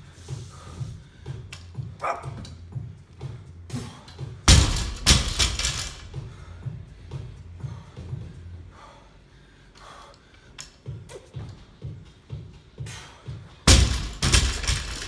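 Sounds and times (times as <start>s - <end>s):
background music with beat: 0.0s - 4.6s, 6.0s - 8.8s, 10.7s - 13.7s
barbell thud on rubber floor: 4.5s - 6.0s, 13.7s - 15.0s.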